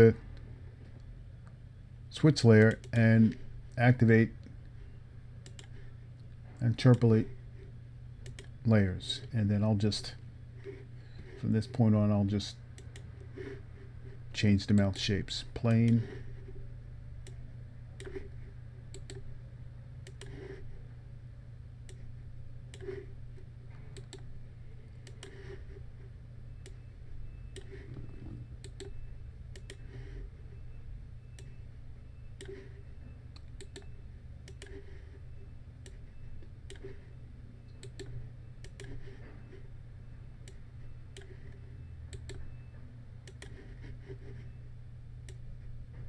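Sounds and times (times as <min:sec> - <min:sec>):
low hum: 0:00.0 - 0:46.0
computer mouse clicking: 0:05.4 - 0:05.8, 0:08.2 - 0:08.6, 0:18.9 - 0:19.2, 0:20.0 - 0:20.4, 0:24.0 - 0:24.3, 0:25.0 - 0:25.5, 0:27.5 - 0:29.9, 0:32.4 - 0:32.6, 0:33.3 - 0:34.8, 0:35.8 - 0:36.9, 0:37.7 - 0:39.0, 0:40.4 - 0:42.5, 0:43.2 - 0:43.6.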